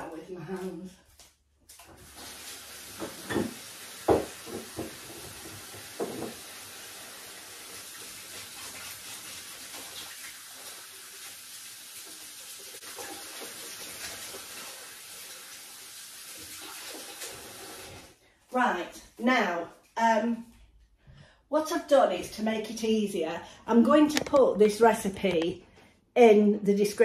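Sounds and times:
tap running into sink: 1.8s - 6.6s.

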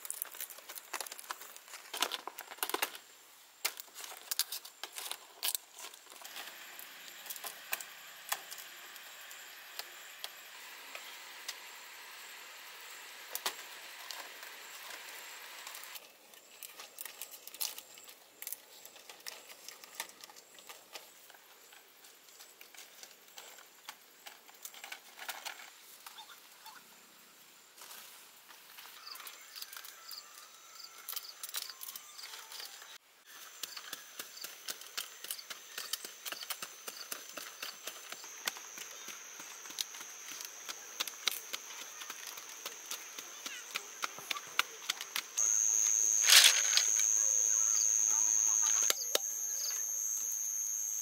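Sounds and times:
high insect drone: 28.8s - 51.0s.

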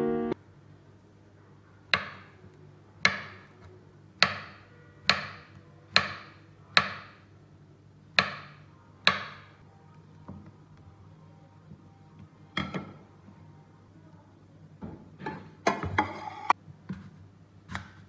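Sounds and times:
knife chopping on wooden board: 3.0s - 3.5s.

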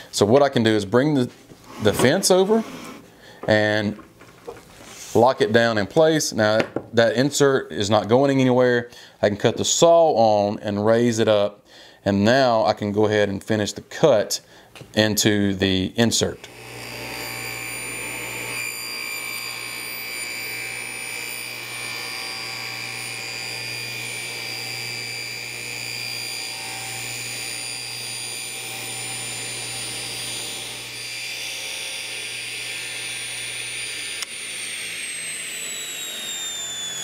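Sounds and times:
table saw whining: 1.6s - 5.2s, 16.4s - 37.0s.

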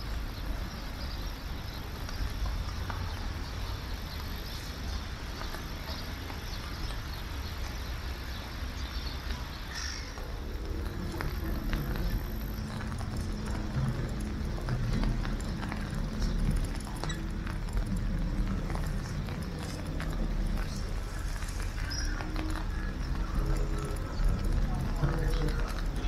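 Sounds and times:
low rumble: 10.1s - 26.0s
boat engine hum: 10.2s - 26.0s.

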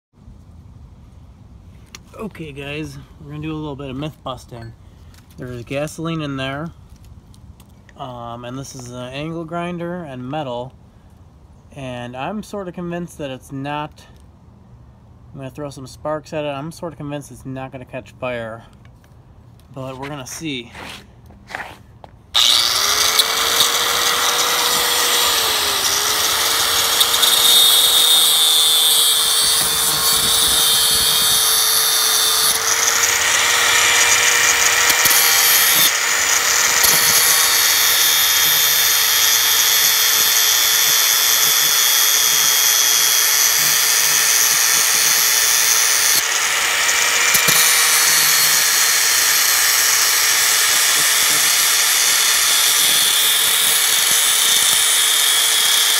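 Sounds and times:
angle grinder grinding metal: 22.4s - 55.9s.

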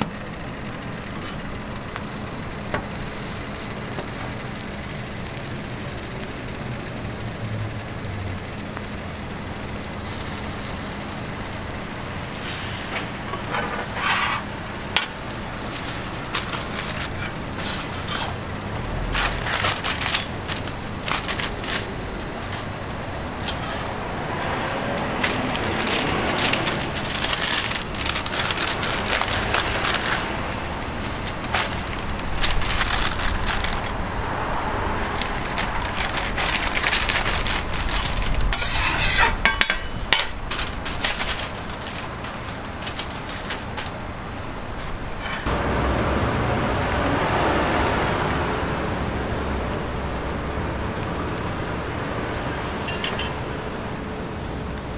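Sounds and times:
paper wrapping crinkling: 7.9s - 45.5s
metal spatula scraping on griddle: 8.9s - 18.4s, 37.9s - 41.2s, 45.2s - 45.5s.

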